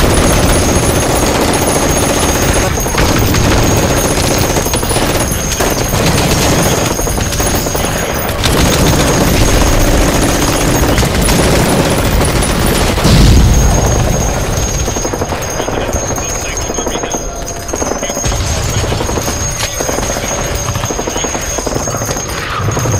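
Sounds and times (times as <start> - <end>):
rapid gunfire: 0.0 - 22.9
heavy low boom: 13.0 - 14.8.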